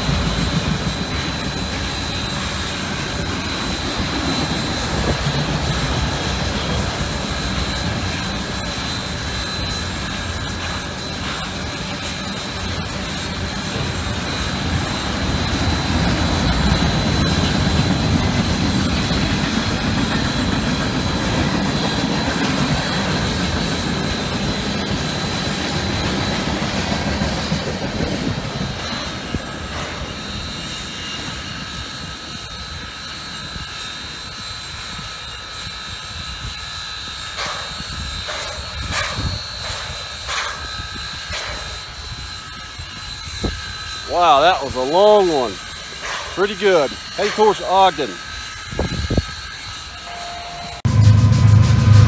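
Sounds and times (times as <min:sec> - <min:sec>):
train wheels rumbling on rails: 0:00.0 - 0:52.0
thin high whine: 0:28.6 - 0:52.0.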